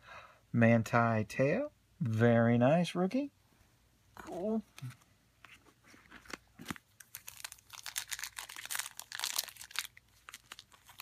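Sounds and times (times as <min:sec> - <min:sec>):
foil wrapper crinkling and tearing: 0:06.2 - 0:11.0.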